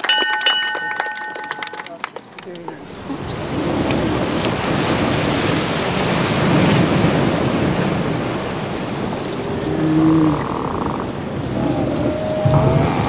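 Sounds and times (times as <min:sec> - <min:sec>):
loud rushing noise: 0:11.5 - 0:13.0.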